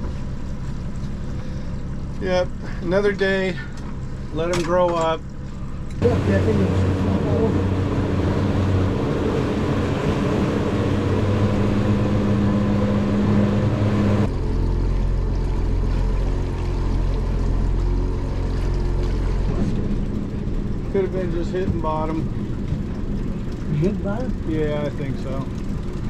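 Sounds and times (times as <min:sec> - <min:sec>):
outboard motor running: 0:00.0 - 0:26.0
water washing along hull: 0:05.2 - 0:26.0.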